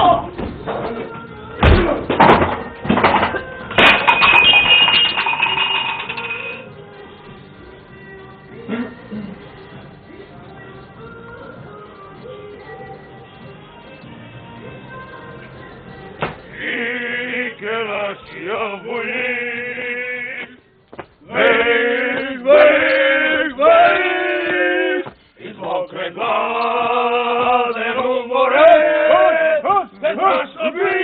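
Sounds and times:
man singing chant-like song: 0:16.5 - 0:20.6, 0:21.2 - 0:31.0.

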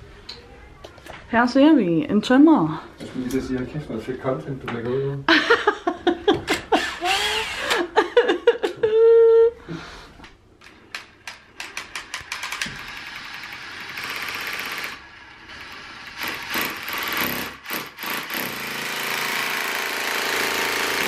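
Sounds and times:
cordless drill boring into wall: 0:06.5 - 0:07.9, 0:12.4 - 0:21.0.

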